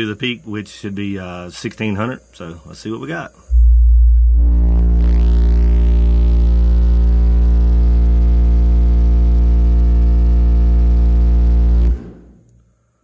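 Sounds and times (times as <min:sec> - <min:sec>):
deep bass test tone: 0:03.5 - 0:12.4.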